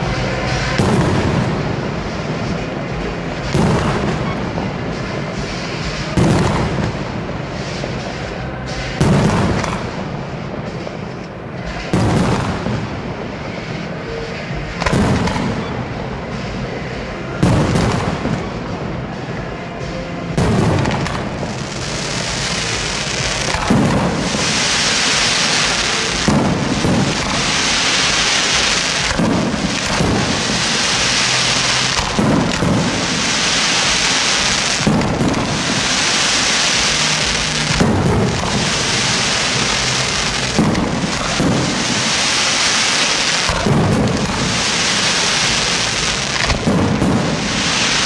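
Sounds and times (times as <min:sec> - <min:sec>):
firework crackling hiss: 0:00.0 - 0:48.0
firework shells bursting: 0:14.8 - 0:15.9, 0:19.9 - 0:48.0.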